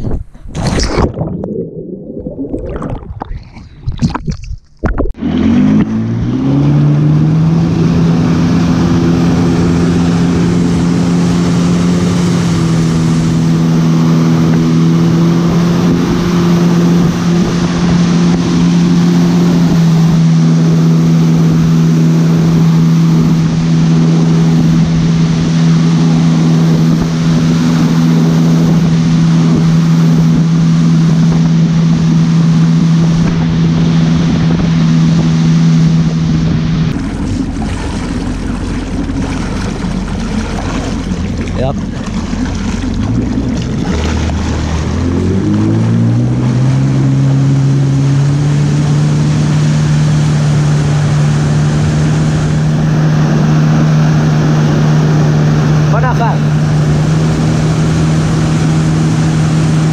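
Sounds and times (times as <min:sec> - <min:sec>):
motorboat engine: 0:00.2 - 0:59.9
underwater bubbling and splashing: 0:00.3 - 0:05.2, 0:17.2 - 0:48.4
rush of boat wake: 0:05.2 - 0:59.9.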